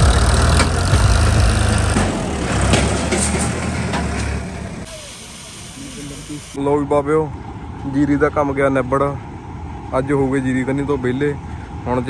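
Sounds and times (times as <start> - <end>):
diesel tractor engine running: 0.0 - 6.6.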